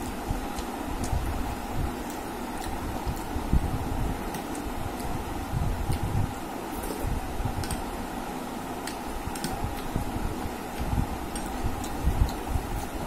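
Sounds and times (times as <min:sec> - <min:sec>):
steady background hum: 0:00.0 - 0:13.0
fingers mixing rice on plate: 0:08.7 - 0:10.0, 0:10.6 - 0:13.0.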